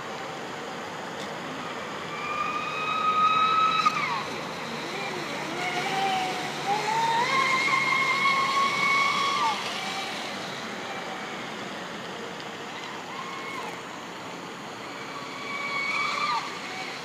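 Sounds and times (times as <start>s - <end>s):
electric motor whining: 2.1s - 12.0s, 14.8s - 17.0s.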